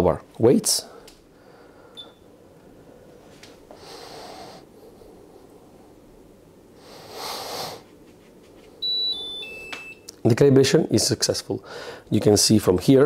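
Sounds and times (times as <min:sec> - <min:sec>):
person breathing: 0:00.8 - 0:06.1, 0:06.8 - 0:07.9, 0:11.6 - 0:12.1.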